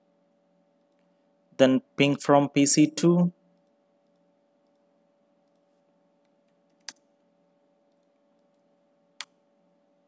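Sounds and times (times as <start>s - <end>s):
low steady hum: 0.0s - 10.0s
computer keyboard keystrokes: 5.4s - 7.1s, 7.9s - 8.6s.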